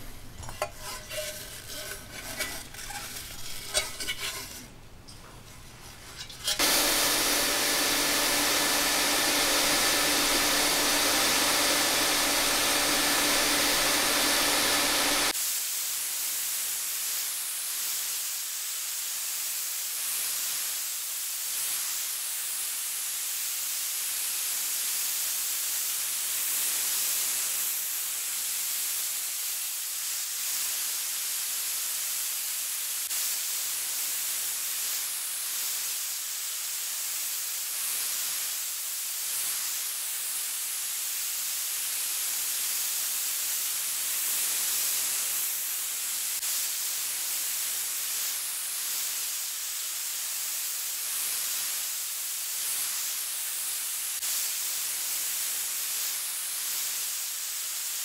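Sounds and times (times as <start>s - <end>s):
sandblaster hum: 5.6s - 15.3s
sandblaster hissing: 5.7s - 22.1s, 25.5s - 58.0s.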